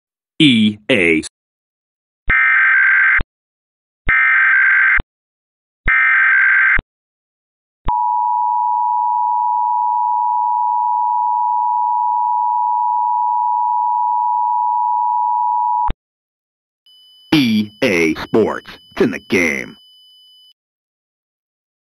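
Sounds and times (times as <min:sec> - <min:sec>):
data burst tones: 0:16.9 - 0:19.8
two-tone attention signal: 0:16.9 - 0:19.8.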